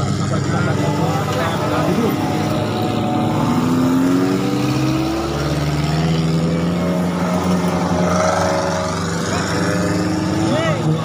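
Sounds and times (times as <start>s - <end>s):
off-road vehicle engines passing: 0.0s - 11.0s.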